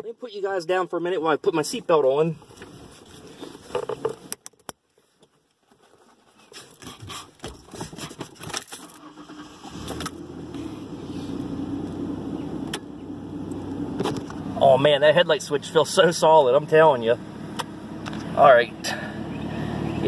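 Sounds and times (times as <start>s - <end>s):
seatbelt clicking and rattling: 6.7s - 10.2s
truck engine idling: 9.0s - 20.0s.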